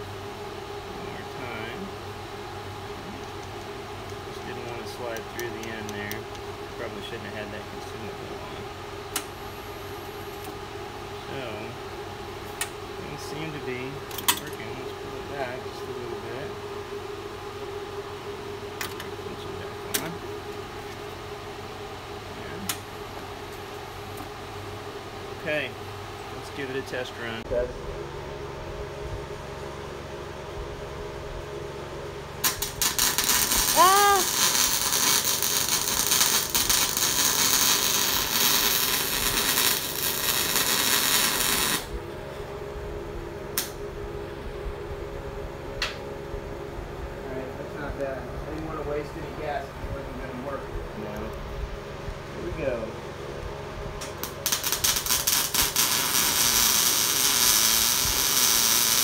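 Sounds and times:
welder machine hum: 0.0s - 59.0s
welding arc crackling and hissing: 32.4s - 42.0s, 54.0s - 59.0s.

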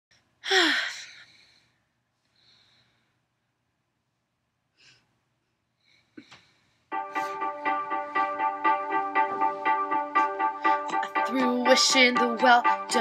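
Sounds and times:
soft breaths or sighs: 0.4s - 3.3s.

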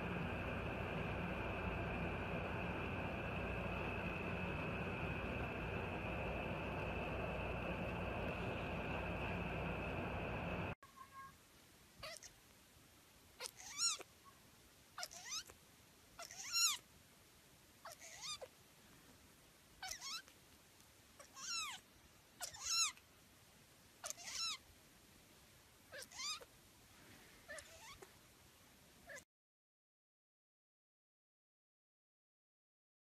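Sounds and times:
kitten mewing: 12.0s - 12.4s, 13.4s - 14.1s, 15.0s - 15.6s, 16.2s - 16.8s, 17.8s - 18.5s, 19.8s - 20.3s, 21.2s - 21.8s, 22.4s - 23.0s, 24.0s - 24.6s, 25.9s - 26.5s, 27.5s - 28.1s, 29.0s - 29.2s.

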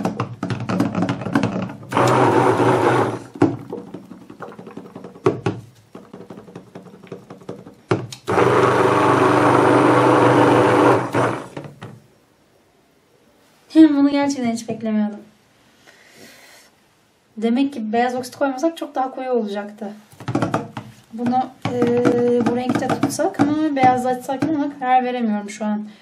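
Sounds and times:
stick blender running: 1.9s - 3.4s, 8.1s - 11.7s
short knocks and taps: 20.2s - 24.6s.

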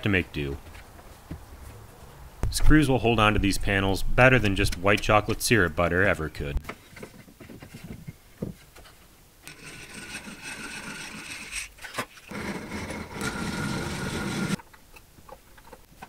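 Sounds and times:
hand drill grinding whir: 9.4s - 11.7s, 12.3s - 14.6s.

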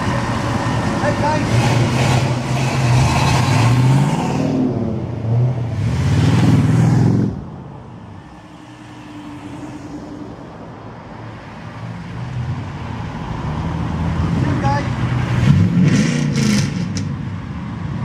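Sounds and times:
car engine revving: 0.0s - 7.4s, 13.4s - 17.1s
cars passing: 0.0s - 18.0s.

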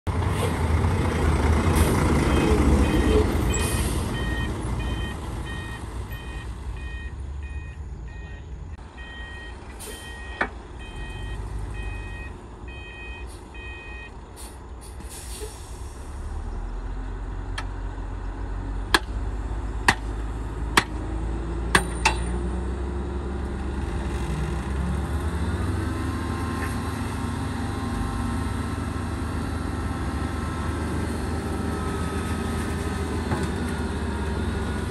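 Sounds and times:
diesel truck engine running: 0.1s - 34.9s
reversing beeper: 2.2s - 14.2s
metallic clanks: 21.7s - 22.4s
engine revving up: 22.4s - 34.9s.

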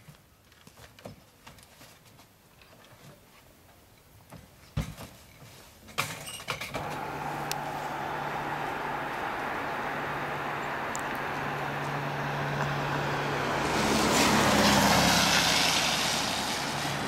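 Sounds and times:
low hum: 6.8s - 17.0s
road traffic: 6.8s - 17.0s.

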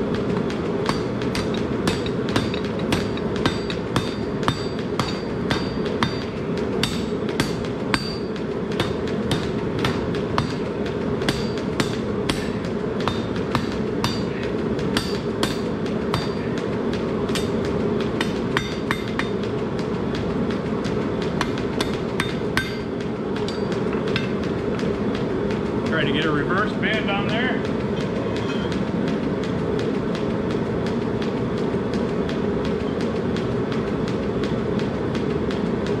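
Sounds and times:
hammer striking steel on anvil: 0.1s - 19.5s, 21.4s - 24.4s.

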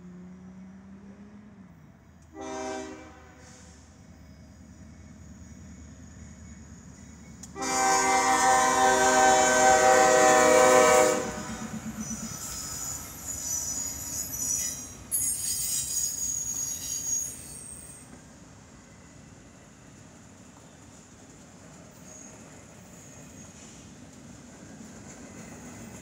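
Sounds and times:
train wheels rumbling: 2.2s - 26.0s
train air horn blast: 2.3s - 3.9s, 7.6s - 11.7s
high-pitched wheel squeal: 11.4s - 18.0s.

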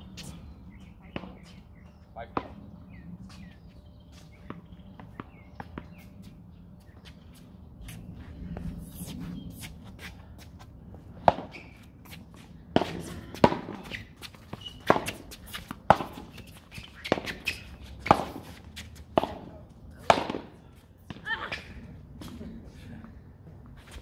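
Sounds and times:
shoe scuffs on court: 11.4s - 19.0s.

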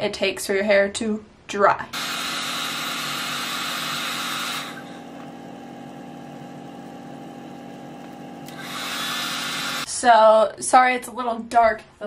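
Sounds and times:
hair dryer running: 2.0s - 9.9s.

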